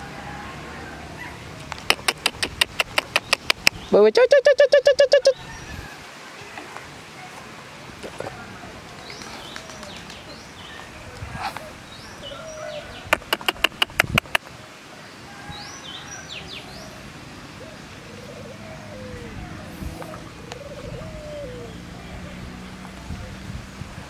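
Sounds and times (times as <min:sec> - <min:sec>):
birds chirping: 0:01.2 - 0:06.6, 0:08.3 - 0:14.5, 0:15.1 - 0:23.4
sharp clicks: 0:01.7 - 0:03.8, 0:13.1 - 0:14.4
dove cooing: 0:04.3 - 0:05.4, 0:17.6 - 0:22.4.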